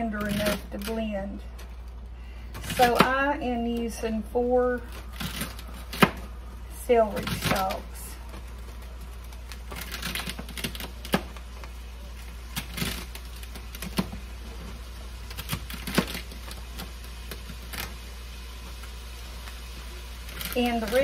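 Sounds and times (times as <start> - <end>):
knife chopping on plastic board: 2.6 - 3.2, 5.2 - 6.3.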